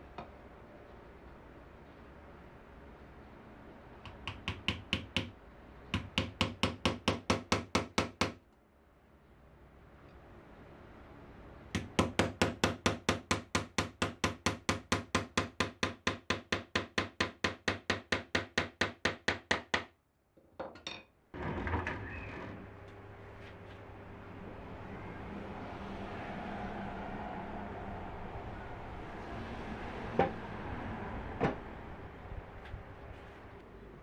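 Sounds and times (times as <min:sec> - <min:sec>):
small hammer tapping brads into wood: 0:04.1 - 0:05.3, 0:06.0 - 0:08.4.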